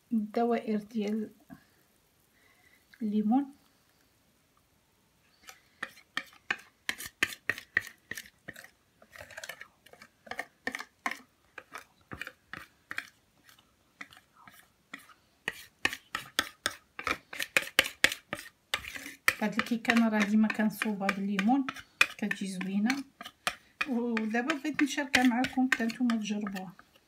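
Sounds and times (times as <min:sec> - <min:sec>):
utensil scraping plastic bowl: 0:05.4 - 0:27.0.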